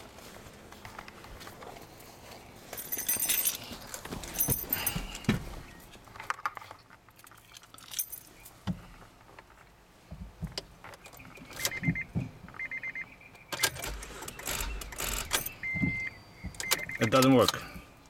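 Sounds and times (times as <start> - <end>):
keys jangling: 2.7 - 5.2, 7.3 - 8.3
rapid electronic dashboard beeps: 11.2 - 17.4.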